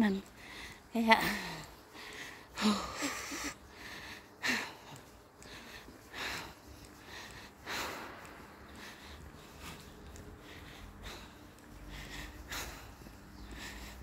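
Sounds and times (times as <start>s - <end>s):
woman breathing hard: 0.4s - 14.0s.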